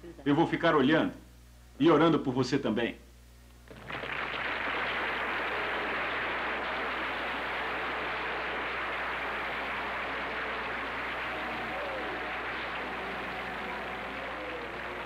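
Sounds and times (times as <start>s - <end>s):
large audience applauding: 3.7s - 15.0s.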